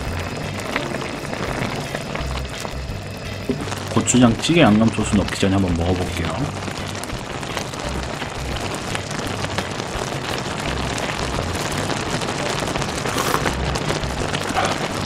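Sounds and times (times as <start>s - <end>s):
stew bubbling and crackling: 0.0s - 15.0s
slurp of hot broth: 13.0s - 13.7s, 14.4s - 15.0s.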